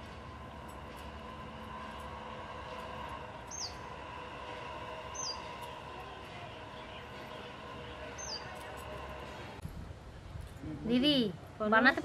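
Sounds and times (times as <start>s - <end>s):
low background hum: 0.0s - 12.0s
bird whistled call: 3.5s - 3.8s, 5.1s - 5.5s, 8.2s - 8.5s.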